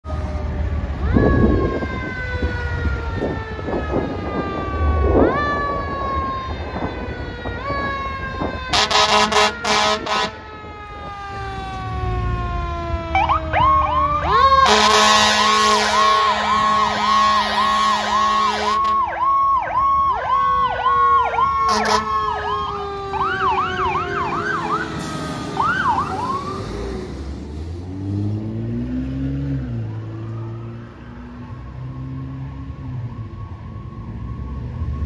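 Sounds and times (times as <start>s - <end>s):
electronic siren tone: 1.0s - 26.7s
air horn blasts: 8.7s - 10.4s, 14.6s - 19.2s, 21.6s - 22.3s.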